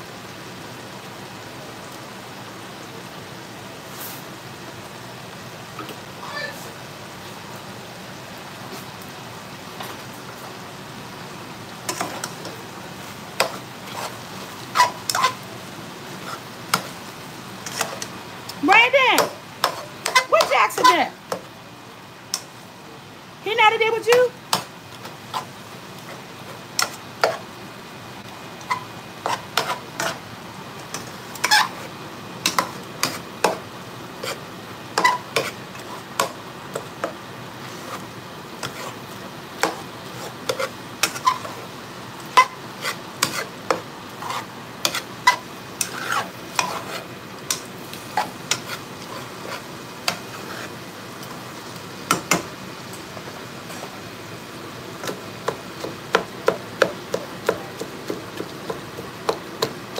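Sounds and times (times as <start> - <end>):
meat sizzling in a skillet: 0.0 - 59.9
metal spoon scraping a pan: 11.9 - 12.6, 13.4 - 15.4, 17.6 - 18.1, 19.2 - 21.0, 26.8 - 27.4, 28.6 - 30.2, 30.9 - 33.6, 34.2 - 34.4, 35.0 - 36.4, 38.6 - 39.0, 39.6 - 41.6, 42.3 - 50.8.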